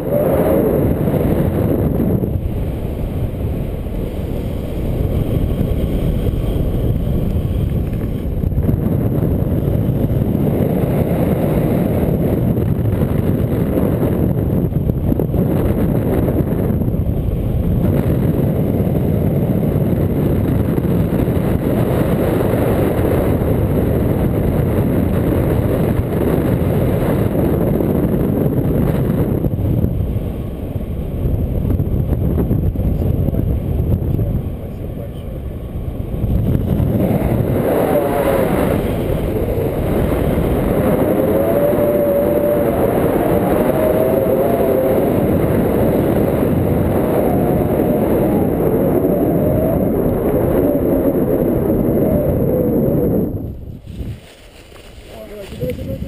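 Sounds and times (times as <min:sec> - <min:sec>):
wind buffeting microphone: 0:00.0 - 0:56.0
faint voice: 0:55.1 - 0:56.0.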